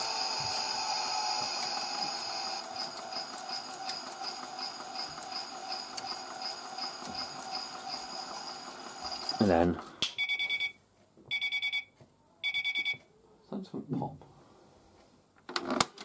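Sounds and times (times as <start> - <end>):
toy washing machine spinning whine: 0.0 - 10.6.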